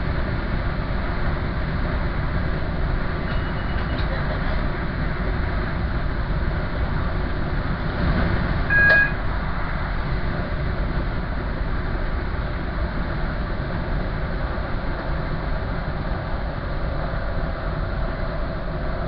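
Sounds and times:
train rumbling: 0.0s - 19.0s
short high beep: 8.7s - 9.2s.

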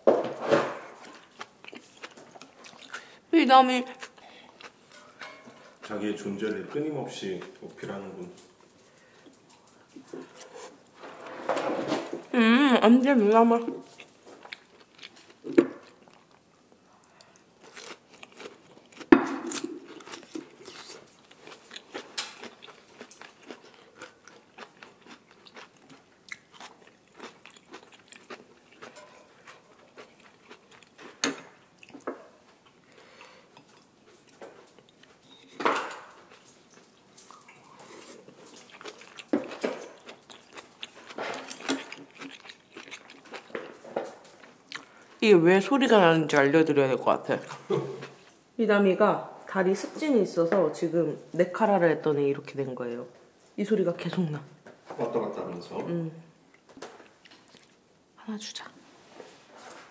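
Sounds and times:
chewing and biting meat: 17.7s - 31.0s, 37.3s - 43.8s.

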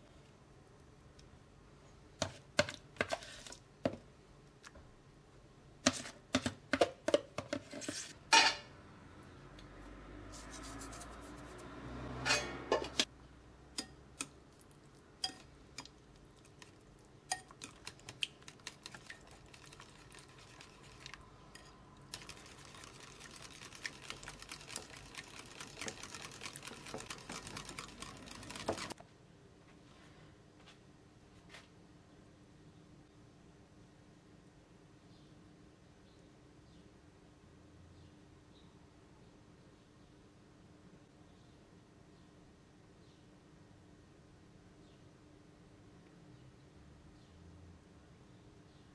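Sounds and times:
spoon clinking ceramic bowl: 15.2s - 16.0s, 17.3s - 17.8s
wire whisk beating in bowl: 15.2s - 29.0s.

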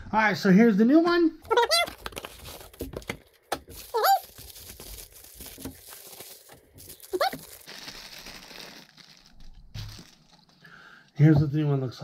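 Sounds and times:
bubble wrap crinkling: 1.4s - 11.1s.

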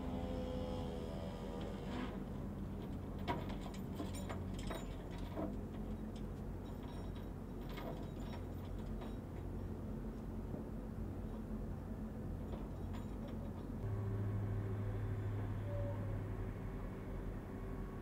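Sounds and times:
drone engine buzz: 13.8s - 18.0s
steady low rumble: 13.8s - 18.0s.

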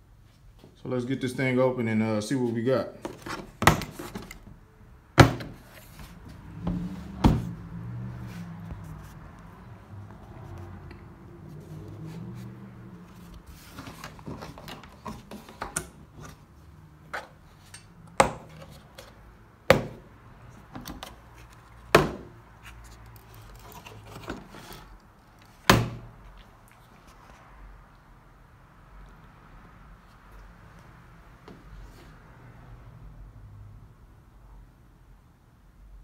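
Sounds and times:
handling plastic case: 3.0s - 4.5s, 13.4s - 16.4s.

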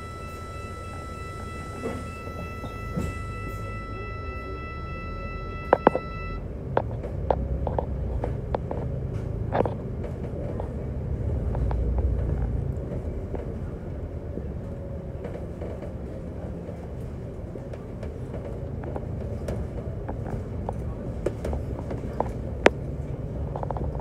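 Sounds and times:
steady high tone: 0.0s - 6.5s
bus engine and road rumble: 0.0s - 24.0s.

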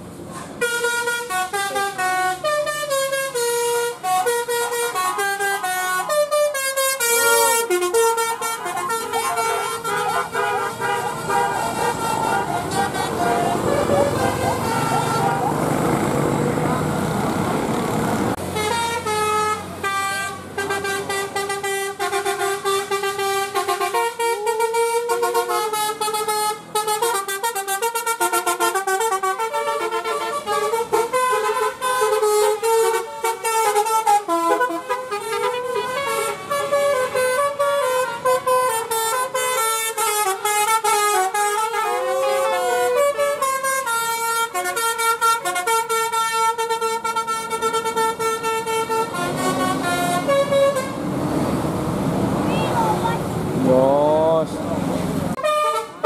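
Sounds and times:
melodic bus horns: 0.2s - 54.5s, 55.3s - 56.0s.

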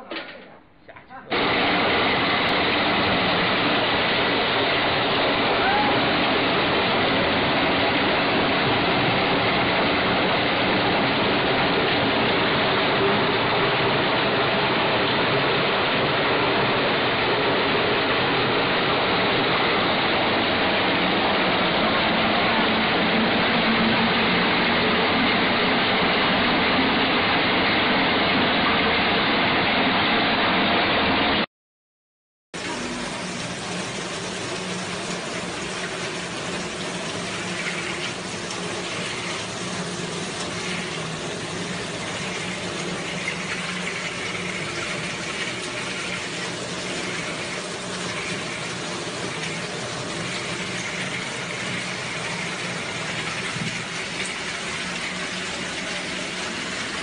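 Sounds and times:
concrete pump running: 0.0s - 31.4s, 32.6s - 57.0s.

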